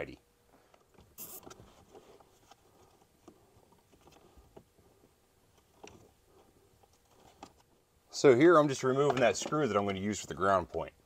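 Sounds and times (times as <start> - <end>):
light handling noise: 8.7 - 10.9.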